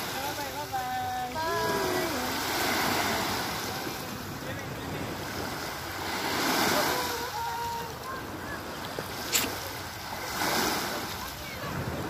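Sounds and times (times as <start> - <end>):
sea waves washing on sand: 0.0 - 12.0
wind on microphone: 0.0 - 12.0
sharp click: 9.3 - 9.6.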